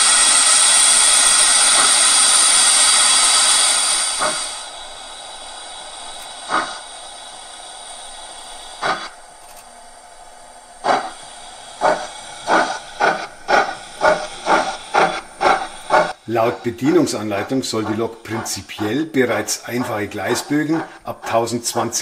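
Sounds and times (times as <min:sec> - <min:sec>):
steam hissing: 0:00.0 - 0:22.0
steam locomotive exhaust chuffs: 0:00.0 - 0:22.0.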